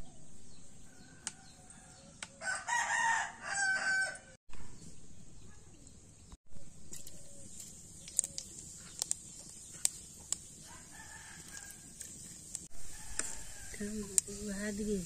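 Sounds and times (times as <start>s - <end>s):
rooster crowing: 0.9s - 4.4s, 10.6s - 11.9s, 12.8s - 13.9s
seeds sizzling in hot oil: 6.6s - 15.0s.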